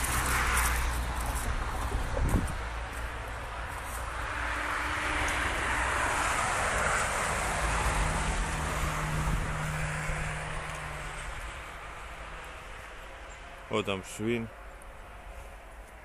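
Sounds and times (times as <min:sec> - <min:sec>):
car driving past: 0:04.0 - 0:13.5.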